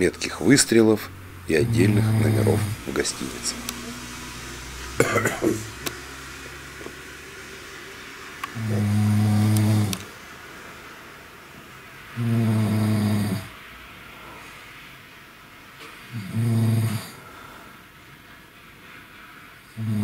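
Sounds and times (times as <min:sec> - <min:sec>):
man snoring: 0:00.8 - 0:04.0, 0:04.9 - 0:05.8, 0:08.6 - 0:10.1, 0:12.2 - 0:13.6, 0:16.1 - 0:17.2, 0:19.8 - 0:20.0.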